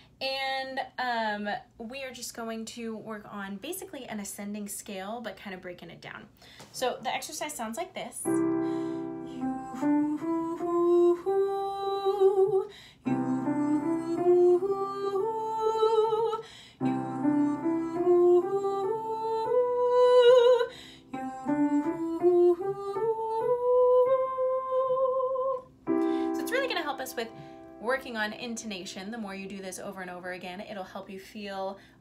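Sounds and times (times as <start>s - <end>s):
piano chords: 8.2s - 12.5s, 13.1s - 30.2s
woman singing vocal exercise: 8.2s - 30.0s.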